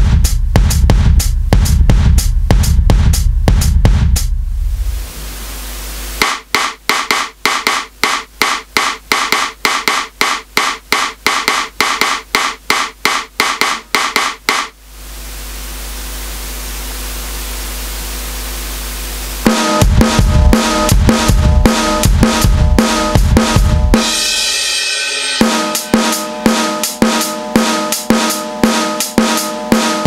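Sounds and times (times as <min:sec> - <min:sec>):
electronic cymbal hits: 0:16.2 - 0:30.0.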